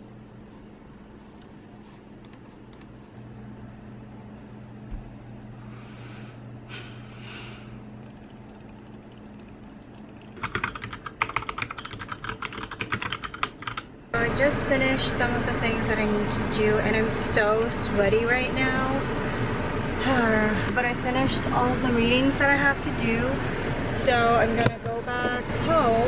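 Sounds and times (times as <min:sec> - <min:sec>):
steady low hum: 0:00.0 - 0:26.0
mechanical keyboard typing: 0:10.4 - 0:13.9.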